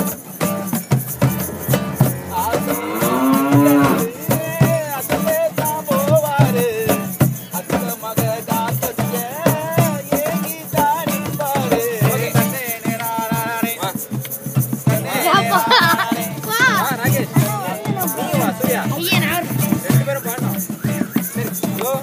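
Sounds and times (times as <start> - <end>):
hand drums: 0.0 - 22.0
shaker: 0.0 - 22.0
man singing folk song: 4.1 - 14.2, 14.8 - 22.0.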